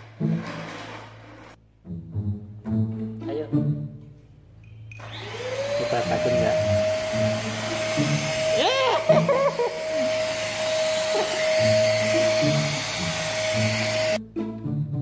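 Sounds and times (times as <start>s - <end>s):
background music: 0.0s - 5.0s, 5.8s - 15.0s
vacuum cleaner motor whine: 5.0s - 14.2s.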